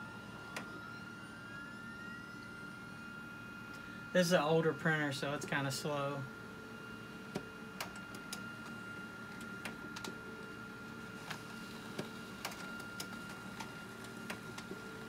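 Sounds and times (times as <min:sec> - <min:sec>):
laser printer humming: 0:00.0 - 0:15.0
printer paper feed clicks: 0:07.3 - 0:10.5, 0:11.2 - 0:15.0.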